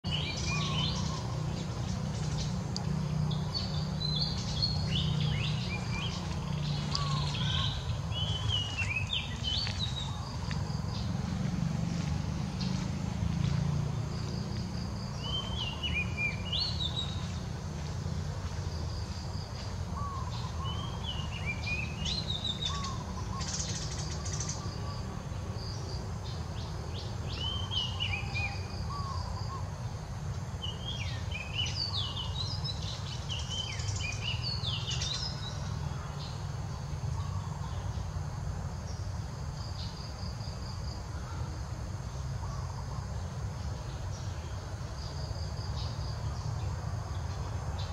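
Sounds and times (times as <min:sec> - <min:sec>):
birds whistling: 0:00.1 - 0:02.6, 0:03.3 - 0:11.0, 0:20.0 - 0:25.0
faint insect drone: 0:00.1 - 0:47.9.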